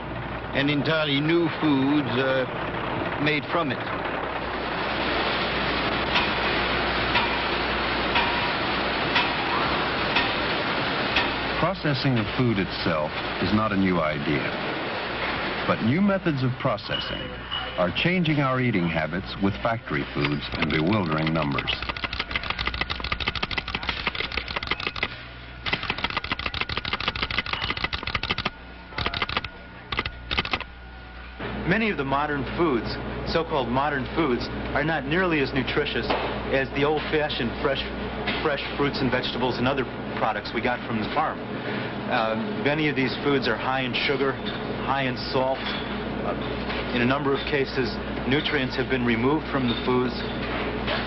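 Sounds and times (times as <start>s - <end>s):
steady low hum: 0.0s - 51.0s
rapid mechanical clicking: 20.1s - 30.8s
packaging machine clacking: 20.3s - 30.7s.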